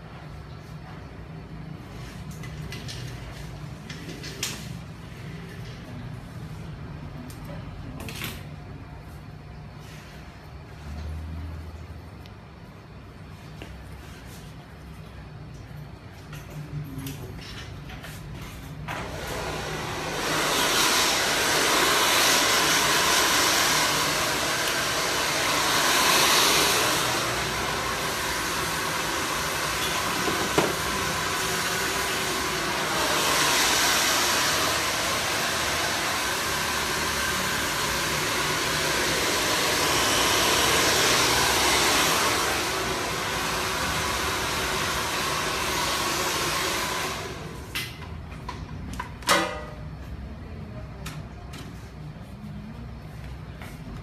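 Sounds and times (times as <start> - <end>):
hair dryer blowing: 18.8 - 48.0.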